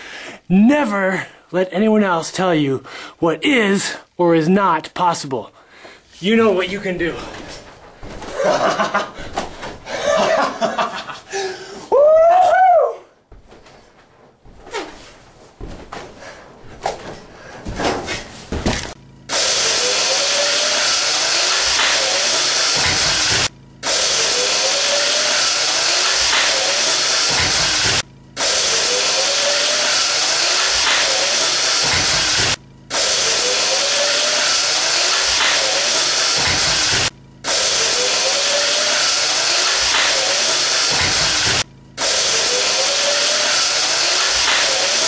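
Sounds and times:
electric motor whirring: 0:19.3 - 0:45.0.

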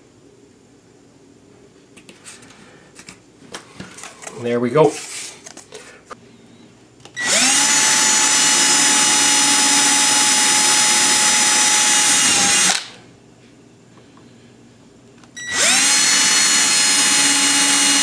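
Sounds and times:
cordless drill drilling: 0:07.2 - 0:12.9, 0:15.4 - 0:18.0.

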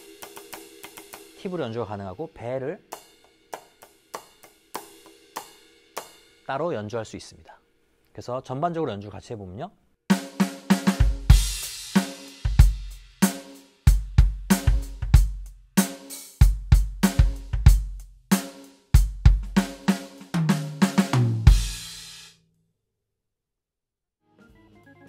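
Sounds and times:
drum kit groove: 0:00.0 - 0:06.7, 0:10.1 - 0:22.4
tom fill: 0:10.1 - 0:22.3.

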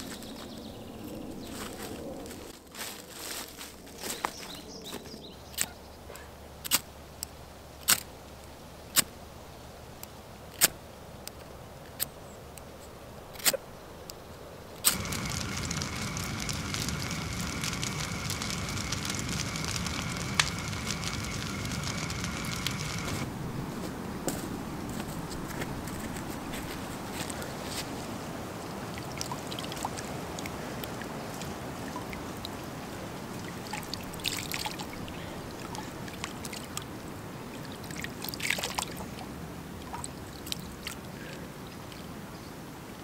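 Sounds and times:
campfire crackling: 0:14.0 - 0:23.4, 0:28.8 - 0:37.3
sharp clicks: 0:14.8 - 0:23.3.

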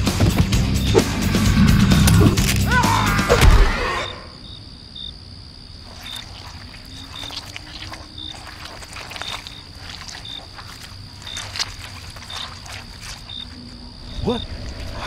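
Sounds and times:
music: 0:00.0 - 0:03.8
crickets chirping: 0:00.0 - 0:15.0
high insect trill: 0:00.0 - 0:15.0
loud wailing cry: 0:02.6 - 0:04.3.

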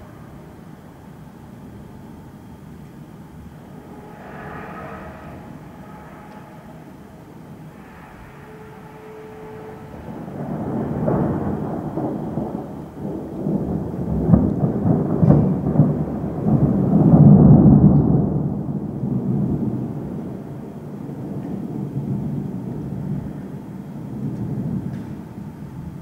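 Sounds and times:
rolling thunder: 0:00.0 - 0:26.0
sharp thunder cracks: 0:10.4 - 0:20.4.

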